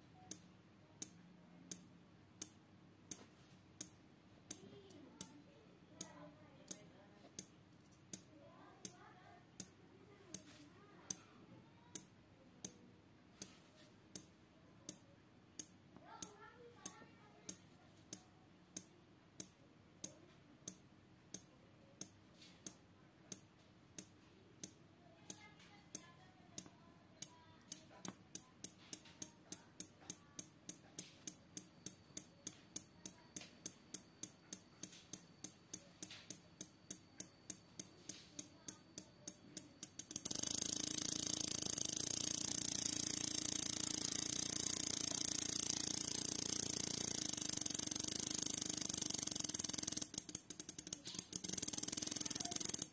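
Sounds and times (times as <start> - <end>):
relay clicking: 29.8 - 52.9.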